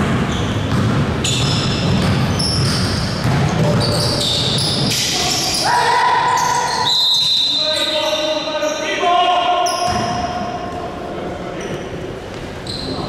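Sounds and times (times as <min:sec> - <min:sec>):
basketball bouncing on court: 0:00.0 - 0:05.0
sneakers squeaking on hardwood: 0:00.0 - 0:05.6, 0:09.6 - 0:10.3, 0:11.7 - 0:13.0.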